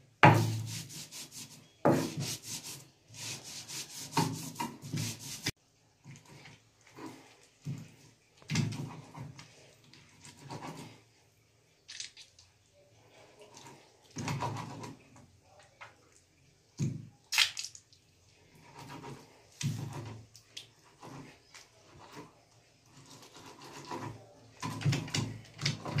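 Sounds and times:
stone roller scraping on grinding stone: 6.2 - 11.1, 13.2 - 15.1, 18.6 - 26.0.

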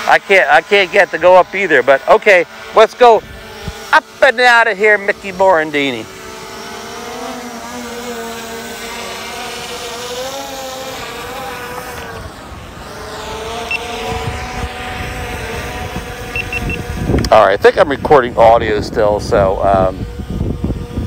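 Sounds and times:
drone propellers whining: 0.0 - 21.0
wind rumble on microphone: 3.2 - 3.9, 13.9 - 21.0.

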